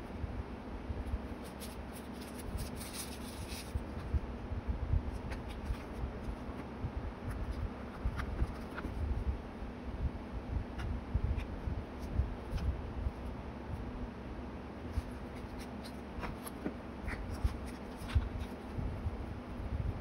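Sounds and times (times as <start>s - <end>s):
paper rustling: 1.1s - 4.2s, 5.1s - 9.0s, 14.9s - 18.8s.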